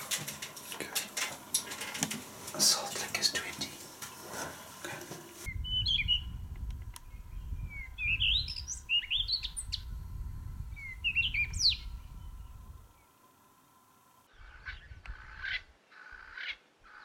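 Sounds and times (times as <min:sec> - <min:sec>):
soft hiss: 0:00.0 - 0:05.5
low rumble: 0:05.4 - 0:13.0
birds chirping and whistling: 0:05.5 - 0:12.8, 0:14.3 - 0:16.6.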